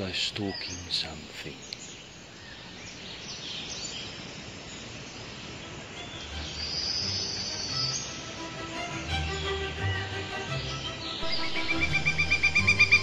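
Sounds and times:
birds chirping: 0:00.0 - 0:13.0
steady background hiss: 0:00.0 - 0:13.0
high sustained trill: 0:11.1 - 0:13.0.

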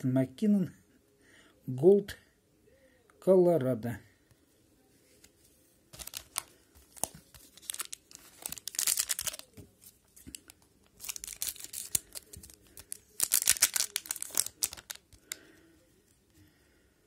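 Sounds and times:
wrapper crinkling and tearing: 0:05.9 - 0:15.4.

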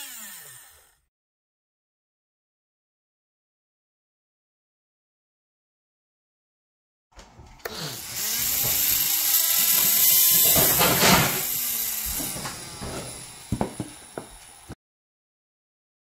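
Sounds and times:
small electric motor whining: 0:00.0 - 0:01.1, 0:07.6 - 0:14.8.

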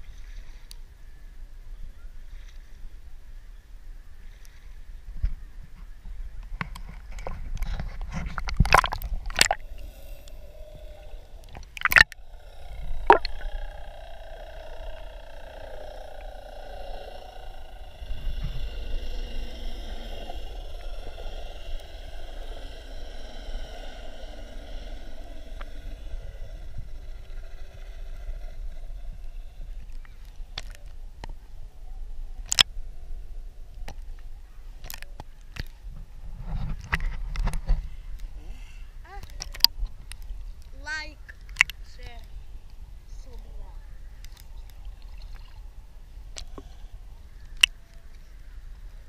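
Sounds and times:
water sloshing against camera: 0:06.4 - 0:31.5
muffled underwater noise: 0:08.1 - 0:33.2.

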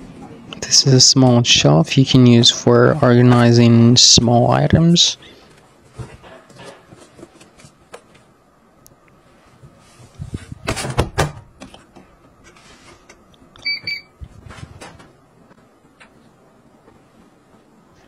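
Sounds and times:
double beep from control panel: 0:13.6 - 0:14.1.

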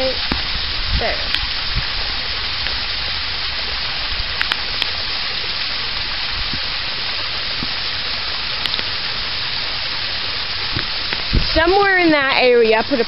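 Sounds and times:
pump jet splashing water: 0:00.0 - 0:13.0.

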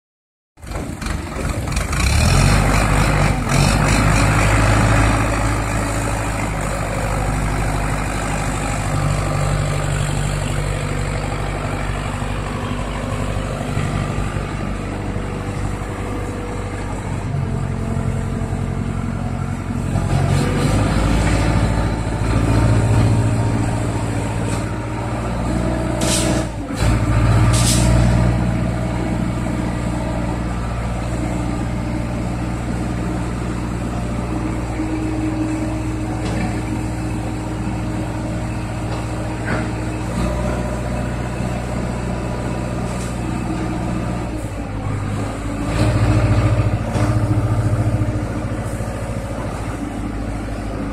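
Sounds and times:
diesel crane engine running: 0:00.6 - 0:50.9
short sharp hisses: 0:26.0 - 0:26.5, 0:27.5 - 0:28.0.

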